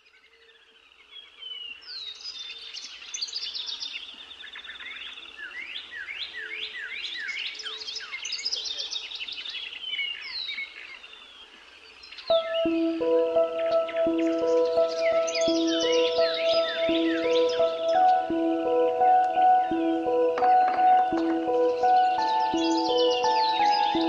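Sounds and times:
songbirds chirping and trilling: 0:00.0 - 0:24.0.

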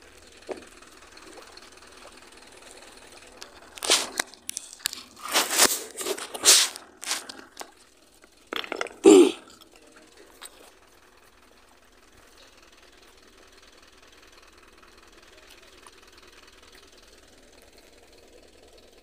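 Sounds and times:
scraping rustling noises: 0:03.7 - 0:07.7.

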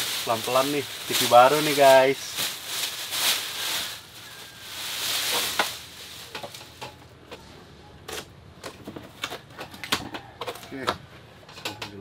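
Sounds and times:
packing being handled: 0:00.0 - 0:06.8
plastic wrapping rustling: 0:00.0 - 0:07.1.

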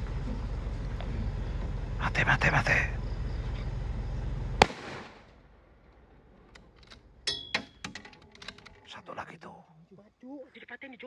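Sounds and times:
low rumble: 0:00.0 - 0:07.3
rifle shot: 0:04.6 - 0:06.1
faint clicks and knocks: 0:05.9 - 0:08.9.

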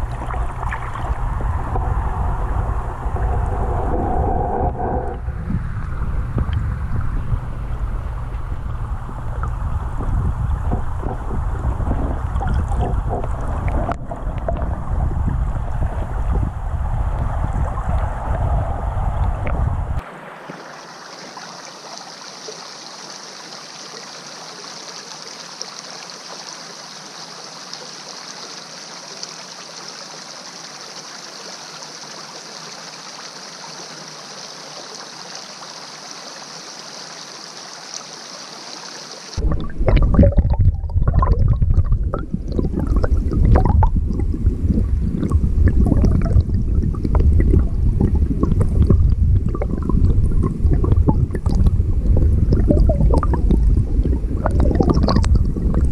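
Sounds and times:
underwater stream hiss: 0:00.0 - 0:06.7, 0:10.8 - 0:40.3
underwater current rushing and gurgling: 0:00.0 - 0:55.9.

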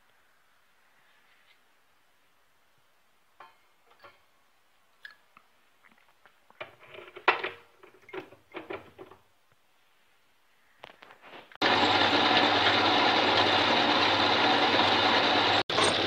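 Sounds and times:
metal bar clinking in lathe chuck: 0:15.7 - 0:16.0.

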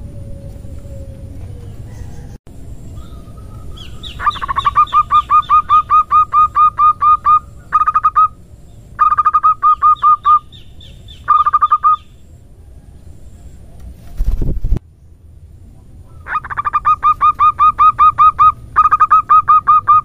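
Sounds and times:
dove calling in quick notes: 0:03.0 - 0:08.4, 0:09.0 - 0:12.1, 0:16.1 - 0:20.0.

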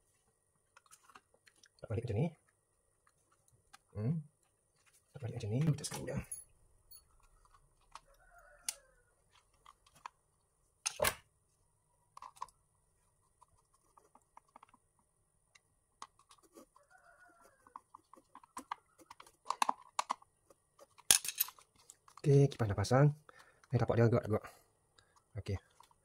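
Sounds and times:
rooster crowing faintly: 0:07.9 - 0:09.4, 0:16.6 - 0:18.2.

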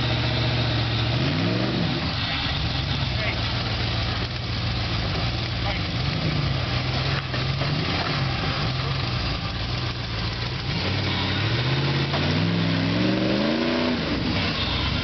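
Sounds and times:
buggy engine running at low revs: 0:00.0 - 0:15.0.

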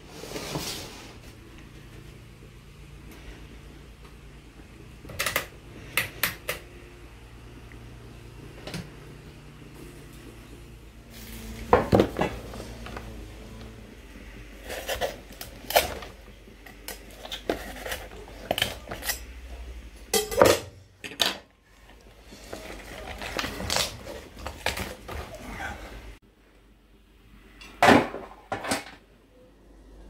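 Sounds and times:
cookware and utensils clinking: 0:16.8 - 0:21.5.

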